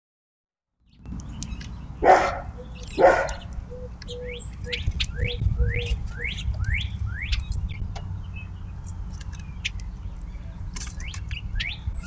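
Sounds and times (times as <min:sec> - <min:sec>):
bird chirping: 0:00.8 - 0:12.0
steady low rumble: 0:01.0 - 0:12.0
dog barking: 0:02.0 - 0:03.4.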